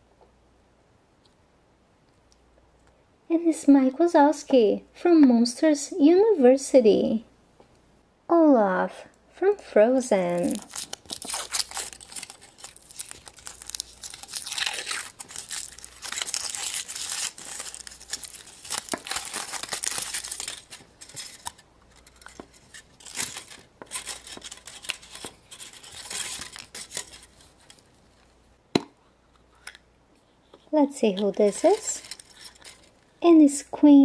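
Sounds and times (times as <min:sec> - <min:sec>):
foil wrapper crinkling and tearing: 0:10.2 - 0:27.9, 0:31.1 - 0:33.0
chocolate shell cracking: 0:10.4 - 0:27.2.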